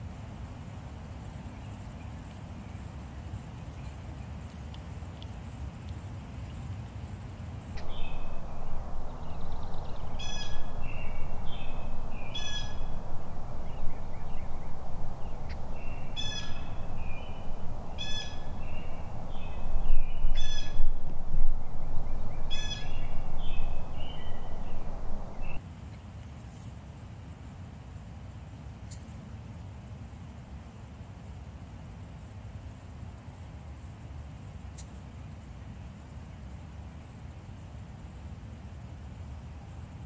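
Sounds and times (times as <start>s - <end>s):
short bird calls: 7.8s - 25.6s
turkey gobbling: 10.1s - 14.8s, 15.4s - 18.6s.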